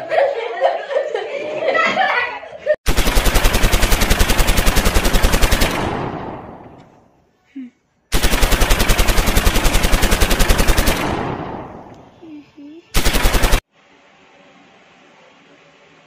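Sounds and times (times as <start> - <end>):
rapid automatic gunfire: 2.9 - 6.8, 8.1 - 11.9, 13.0 - 13.7.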